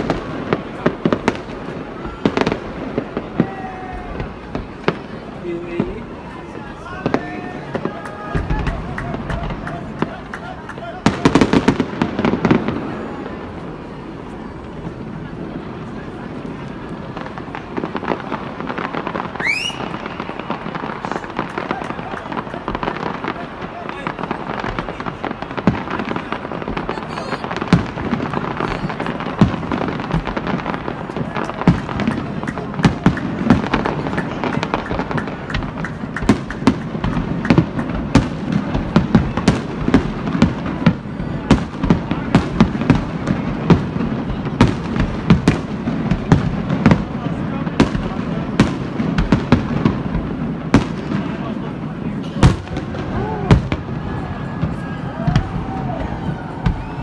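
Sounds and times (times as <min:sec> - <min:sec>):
fireworks crackling and popping: 0:00.0 - 0:57.0
rising firework whistle: 0:19.2 - 0:23.3, 0:52.8 - 0:57.0.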